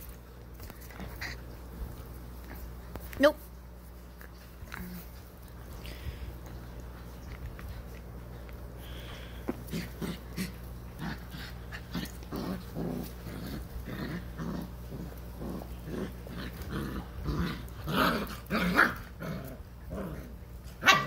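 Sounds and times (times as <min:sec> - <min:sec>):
puppies growling and yipping: 0:04.4 - 0:21.0.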